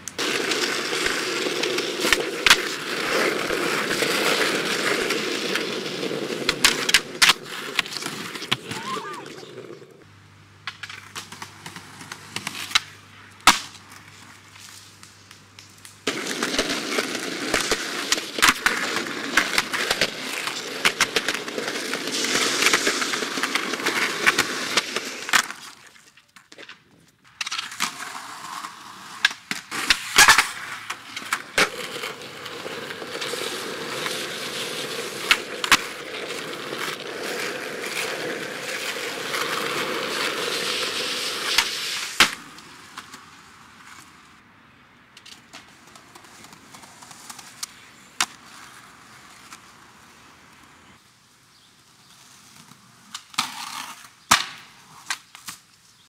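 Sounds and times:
skateboard clacks: 0.0 - 10.0, 10.6 - 14.2, 15.5 - 44.0
skateboard wheels rolling on concrete: 0.0 - 56.0.

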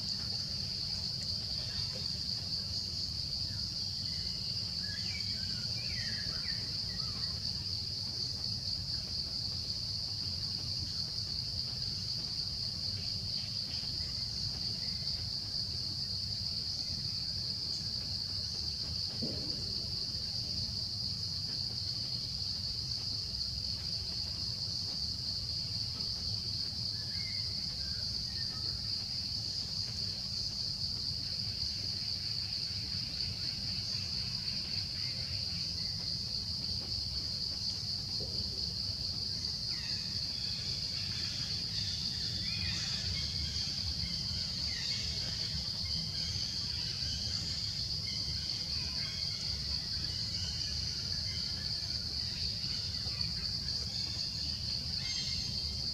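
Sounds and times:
high-pitched insect chorus: 0.0 - 55.9.

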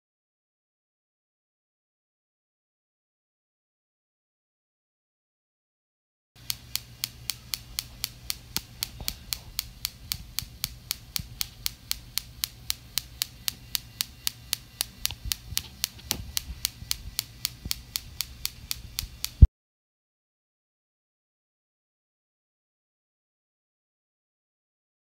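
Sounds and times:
low motor hum: 6.4 - 19.5
snapping electric sparks: 6.4 - 19.5.

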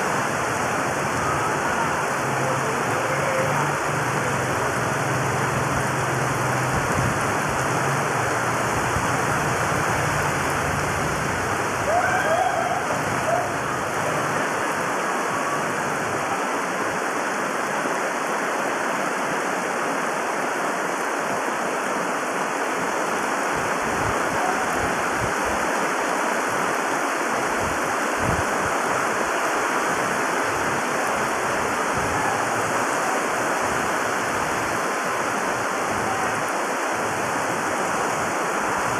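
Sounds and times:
water running across road: 0.0 - 24.3
heavy rain on flooded street: 0.0 - 38.9.

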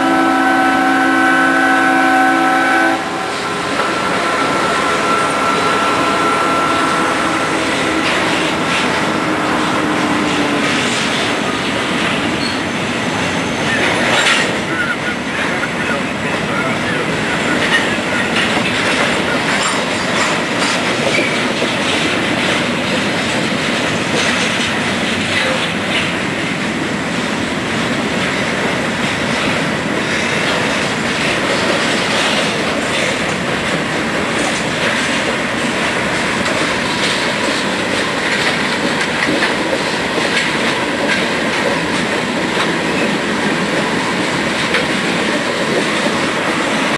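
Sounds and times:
freight train wheels rumbling: 0.0 - 46.9
wheels clicking over rail joints: 17.3 - 46.9.

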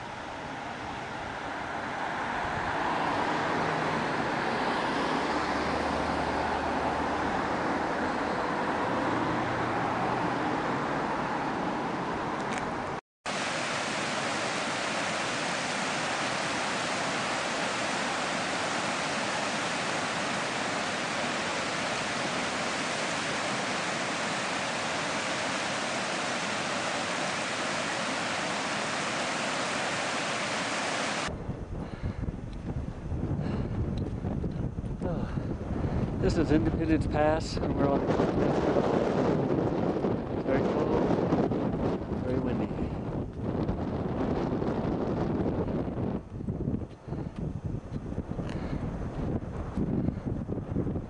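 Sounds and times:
steady rushing noise: 12.8 - 51.0
vehicle hum with low tones: 44.9 - 51.0.

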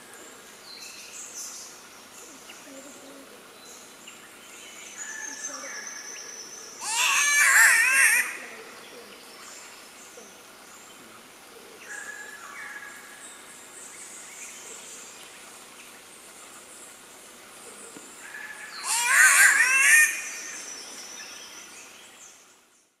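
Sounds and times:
catbird wailing call: 6.8 - 8.6, 18.8 - 20.4.

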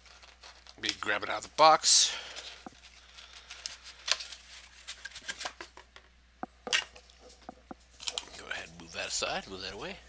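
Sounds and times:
cardboard packaging rustling: 0.0 - 1.7, 2.3 - 5.8.

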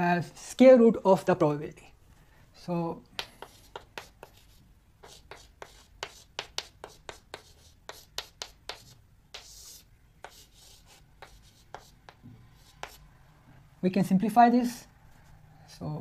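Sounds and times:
chalk tapping on blackboard: 3.2 - 13.0
chalk scratching on blackboard: 3.2 - 13.1.

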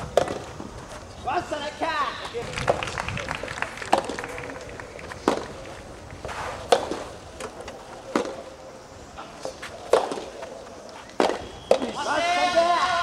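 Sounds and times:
rackets hitting rubber ball: 0.1 - 0.5, 3.8 - 5.7, 6.6 - 8.4, 9.4 - 10.5, 11.1 - 12.1.

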